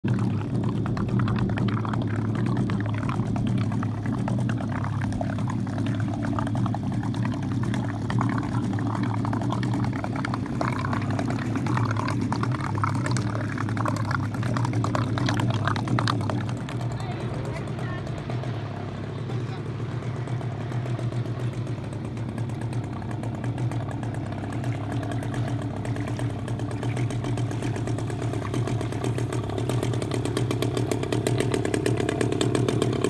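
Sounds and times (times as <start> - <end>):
small boat engine idling: 0.0 - 33.0
water splashing and lapping: 0.0 - 33.0.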